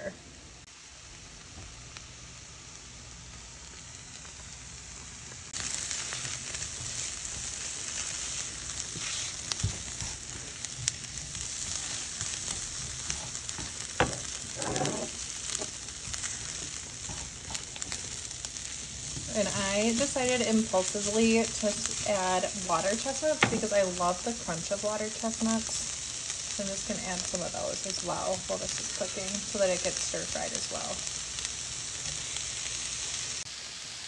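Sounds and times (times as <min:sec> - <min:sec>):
food sizzling in frying pan: 0:00.4 - 0:34.0
spatula knocking in pan: 0:14.0 - 0:15.7.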